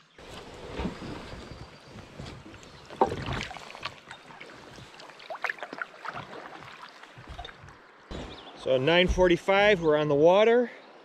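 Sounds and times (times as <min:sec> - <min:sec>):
paddle splashing in water: 0:00.2 - 0:08.1.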